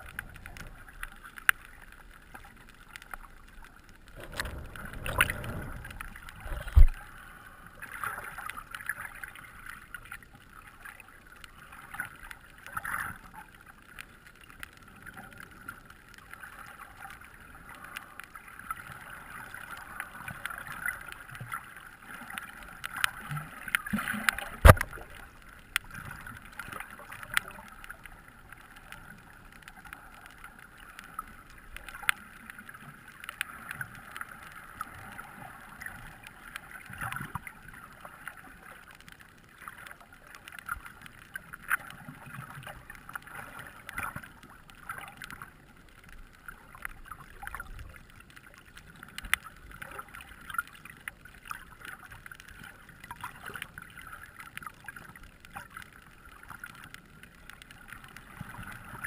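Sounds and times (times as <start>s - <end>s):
sharp clicks and small knocks: 24.0s - 25.2s.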